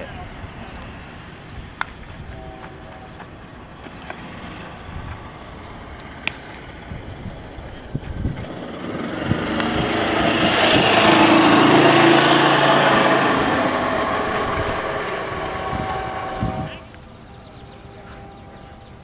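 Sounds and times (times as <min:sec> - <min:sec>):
vehicle passing by: 0:02.7 - 0:17.0.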